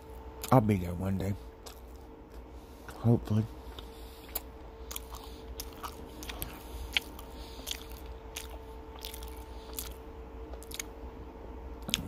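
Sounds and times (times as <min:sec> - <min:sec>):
faint steady hum: 0:00.0 - 0:12.0
close chewing: 0:01.6 - 0:03.0, 0:03.6 - 0:11.0, 0:11.8 - 0:12.0.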